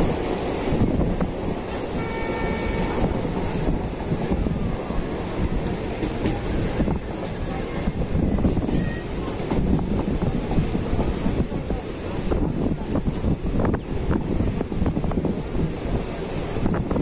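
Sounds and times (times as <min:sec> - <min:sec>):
train wheels rumbling on rails: 0:00.0 - 0:17.0
faint horn tone: 0:01.9 - 0:03.2.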